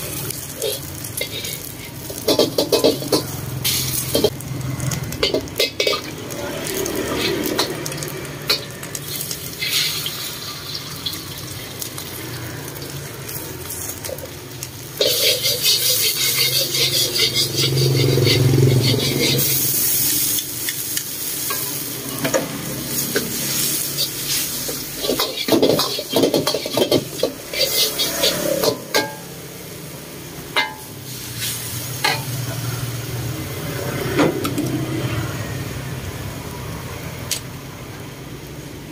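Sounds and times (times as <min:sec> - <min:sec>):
egg sizzling in hot oil: 0:00.0 - 0:34.0
ladle scraping and clanking on wok: 0:00.1 - 0:11.3, 0:13.3 - 0:29.4, 0:30.5 - 0:32.9.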